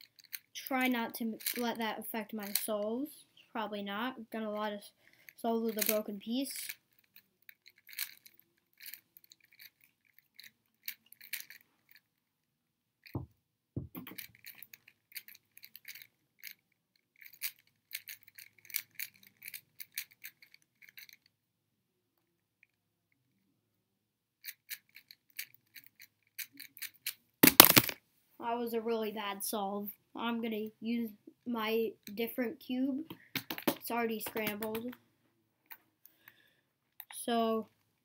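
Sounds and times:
dull knocks: 13.2 - 14.1
puzzle cube layers clicking: 13.9 - 16.0, 24.7 - 28.0, 33.3 - 35.0.

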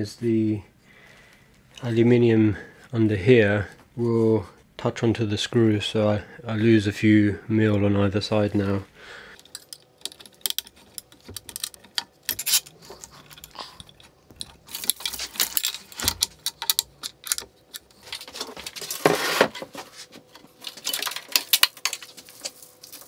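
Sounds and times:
tools clicking and rattling: 9.4 - 19.0, 20.3 - 23.0
rustling clatter: 9.5 - 23.0.

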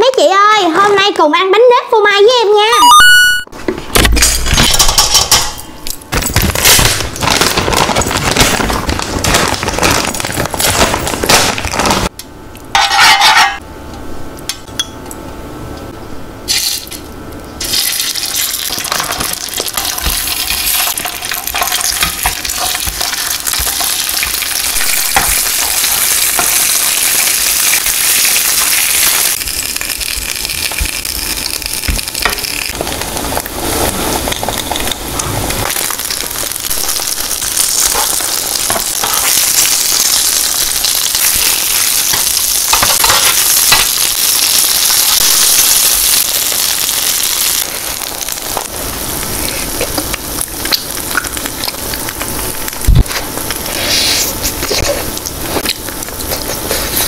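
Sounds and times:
buns sizzling in oil: 17.6 - 57.0.

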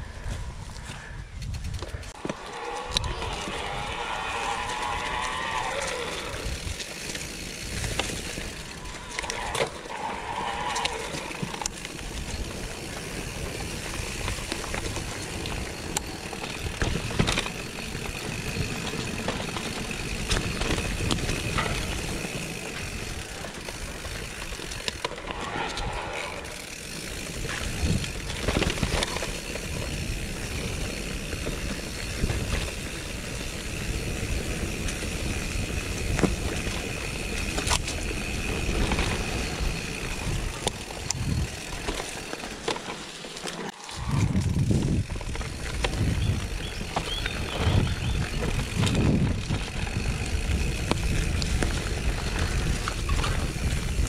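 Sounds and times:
wind noise on microphone: 0.0 - 2.2, 6.2 - 9.2, 27.2 - 30.8, 33.8 - 41.8, 43.9 - 54.0
bike tyres rolling over dirt and stones: 0.0 - 54.0
bike rattling and knocking: 1.4 - 54.0.

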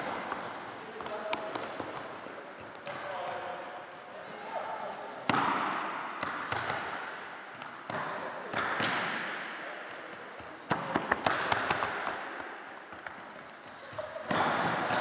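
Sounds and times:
sharp slaps echoing: 0.0 - 2.1, 5.2 - 15.0
ball and feet on wooden floor: 10.0 - 15.0.

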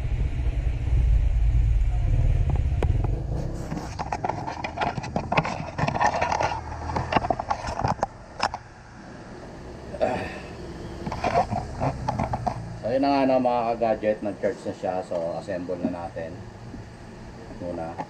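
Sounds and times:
low rumble: 0.0 - 5.7.

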